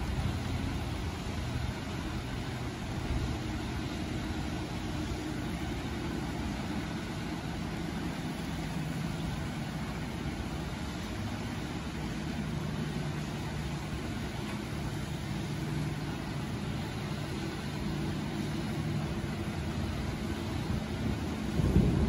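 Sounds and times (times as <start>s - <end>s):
low steady hum: 0.0s - 22.0s
steady rain: 0.0s - 22.0s.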